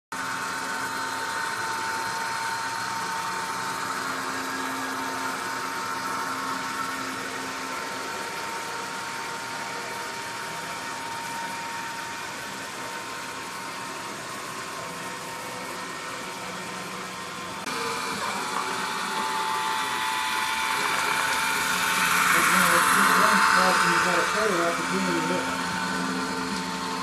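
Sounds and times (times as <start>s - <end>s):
model train motor whine: 0.2s - 27.0s
higher whine: 17.4s - 27.0s
wheels hissing on track: 17.7s - 27.0s.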